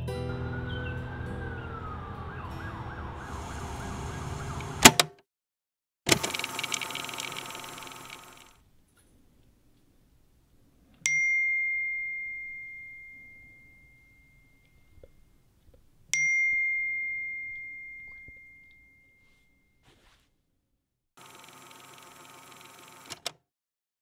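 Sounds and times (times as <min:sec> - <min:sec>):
phone notification chime: 0:16.2 - 0:19.4.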